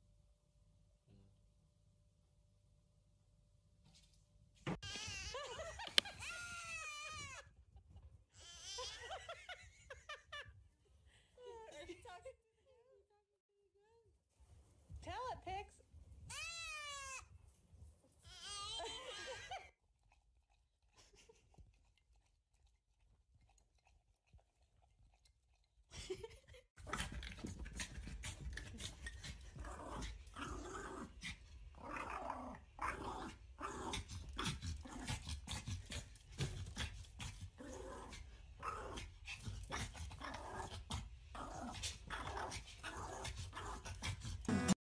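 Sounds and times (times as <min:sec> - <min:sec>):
small dog growling and barking: 0:26.8 - 0:44.8.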